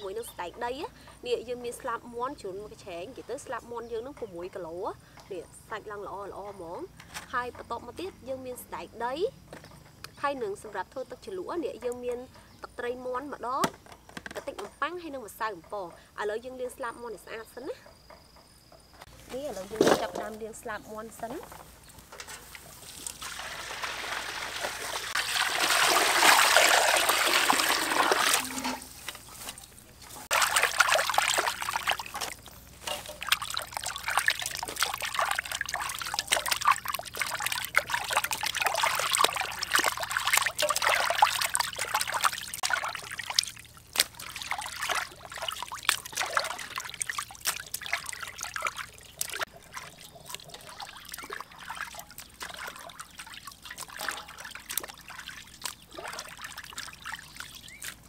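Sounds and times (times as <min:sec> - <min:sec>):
water pouring into metal basin: 0:22.1 - 0:29.1, 0:30.3 - 0:57.7
hands sloshing in water: 0:22.2 - 0:58.0.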